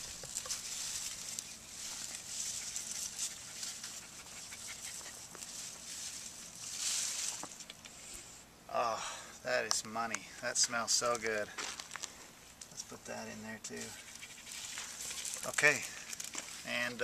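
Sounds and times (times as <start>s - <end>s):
leaves rustling: 0.0s - 8.4s, 13.7s - 17.0s.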